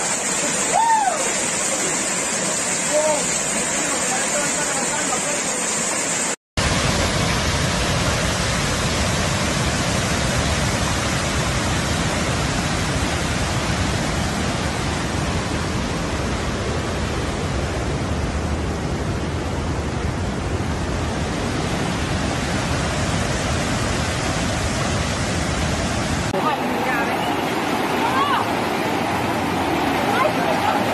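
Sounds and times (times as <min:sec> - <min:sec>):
floodwater rushing: 0:00.0 - 0:30.9.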